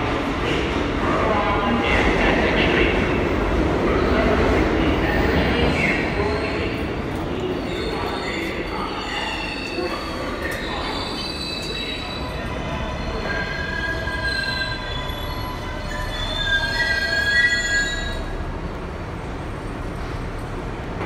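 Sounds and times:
subway car rumbling on rails: 0.0s - 21.0s
steel wheel squeal: 13.2s - 18.2s.

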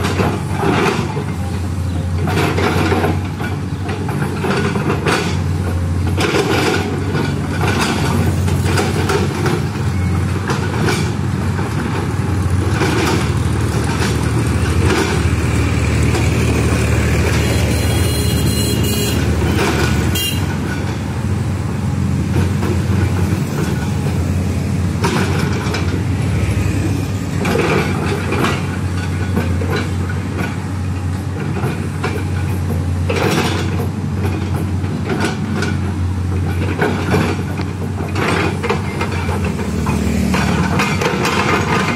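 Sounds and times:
excavator diesel engine running: 0.0s - 41.9s.

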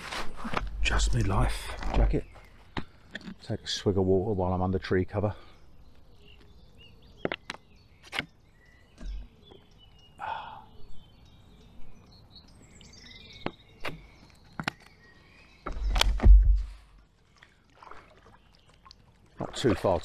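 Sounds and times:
small birds chirping: 0.3s - 20.0s
sharp clicks and knocks: 15.6s - 16.7s.

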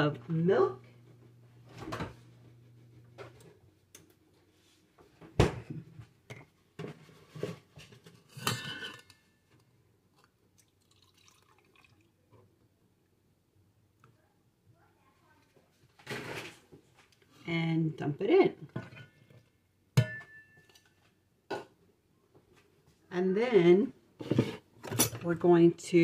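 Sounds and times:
milk pouring into plastic cup: 10.2s - 12.3s.

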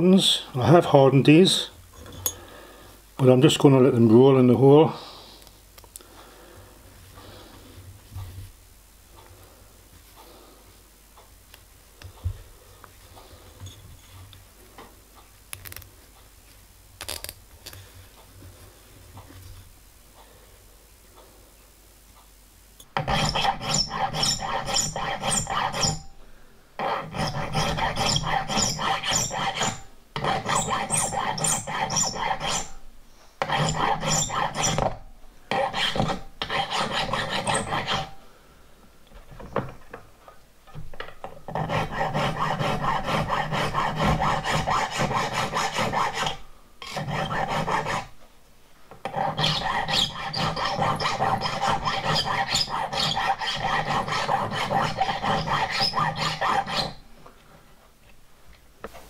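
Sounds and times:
hand file rasping on metal: 23.0s - 26.1s, 26.8s - 32.8s, 33.4s - 38.2s, 41.4s - 48.2s, 49.0s - 57.0s.

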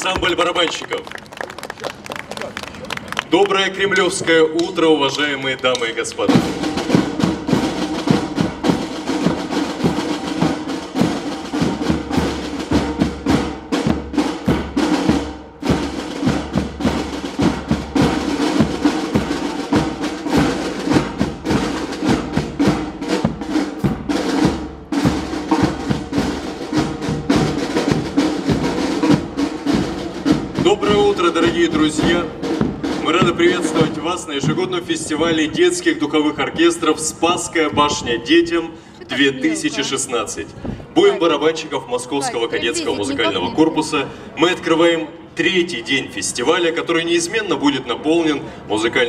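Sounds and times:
marching snare drums playing cadence: 5.8s - 35.9s
bass drum: 6.3s - 35.7s.

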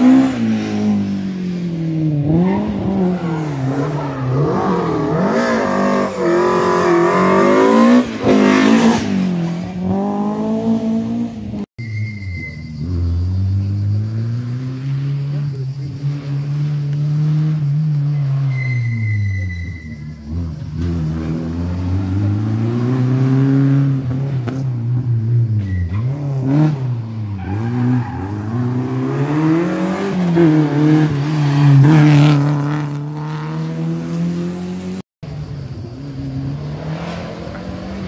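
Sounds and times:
race car engine revving: 0.0s - 11.6s.

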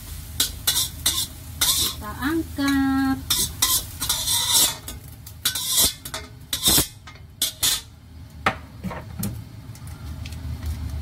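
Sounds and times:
metal spatula scraping a wok: 0.4s - 7.9s.

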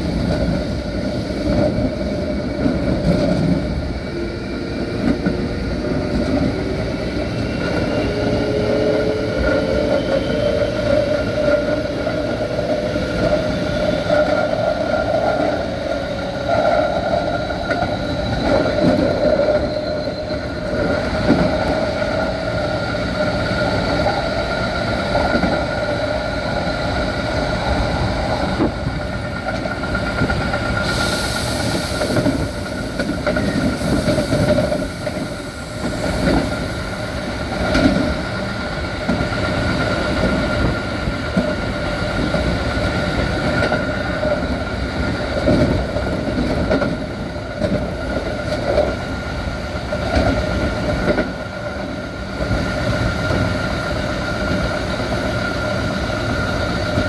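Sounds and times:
electric train motor whine: 0.8s - 30.6s
rail-joint clicks: 4.8s - 57.0s.

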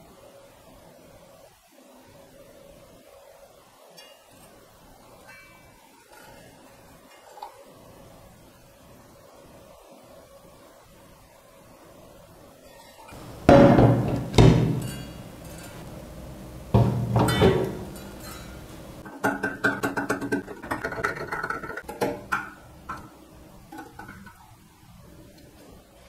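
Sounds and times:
ringing metal clunks: 12.8s - 19.4s.

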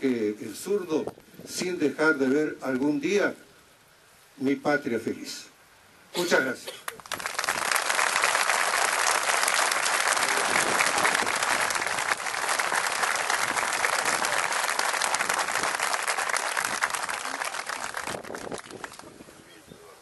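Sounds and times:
crowd applauding: 6.9s - 19.2s.

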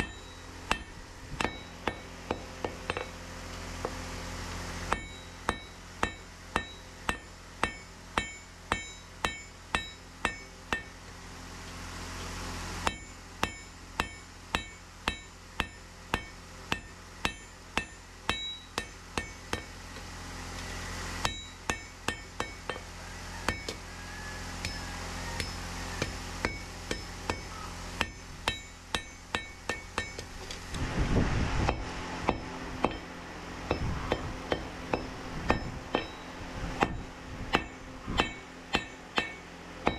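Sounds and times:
hammer striking steel on anvil: 0.0s - 3.2s, 4.9s - 11.1s, 12.8s - 19.8s, 21.2s - 23.8s, 24.6s - 30.6s, 31.6s - 39.9s
steady low hum: 0.0s - 39.9s
rush of noise: 30.7s - 32.8s.

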